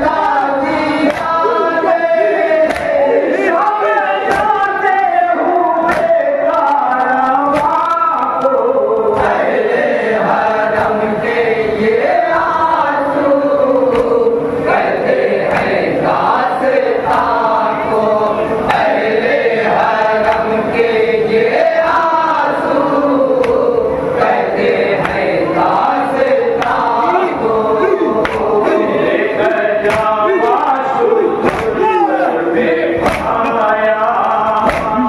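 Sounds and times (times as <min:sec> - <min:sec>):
men chanting a lament: 0:00.0 - 0:35.0
person reciting over loudspeaker: 0:00.0 - 0:35.0
chest-beating slaps: 0:01.0 - 0:01.4, 0:02.6 - 0:03.0, 0:05.9 - 0:06.2, 0:07.5 - 0:07.9, 0:28.2 - 0:28.6, 0:29.8 - 0:30.2, 0:31.4 - 0:31.9, 0:33.0 - 0:33.5, 0:34.6 - 0:35.0.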